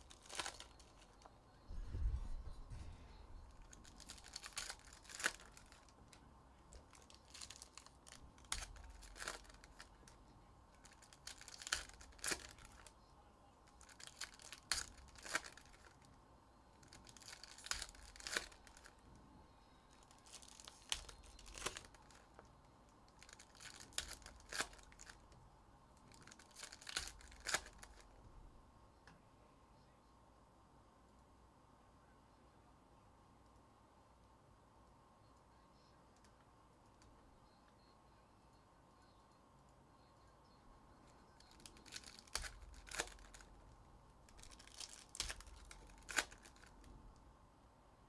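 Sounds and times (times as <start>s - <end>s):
foil wrappers tearing and crinkling: 0.0s - 1.2s, 3.5s - 5.9s, 6.7s - 10.2s, 10.8s - 12.9s, 13.8s - 16.0s, 16.8s - 18.9s, 20.0s - 22.3s, 23.2s - 25.2s, 26.1s - 28.0s, 41.4s - 43.5s, 44.3s - 46.8s.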